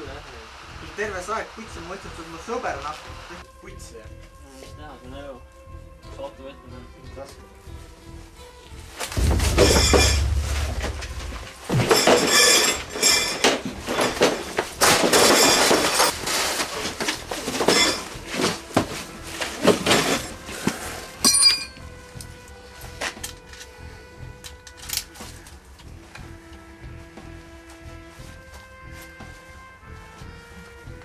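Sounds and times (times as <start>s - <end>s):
film music: 8.4s - 13.0s
objects crashing and clattering: 9.1s - 20.4s
heavy low thud: 9.2s - 12.9s
glass clinking and breaking: 11.7s - 16.1s, 17.5s - 18.1s, 21.2s - 21.8s.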